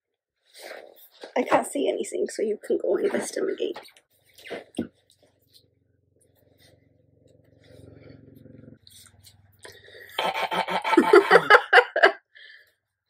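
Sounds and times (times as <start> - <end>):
faint low hum: 2.6 - 12.1
laughter: 10.2 - 12.3.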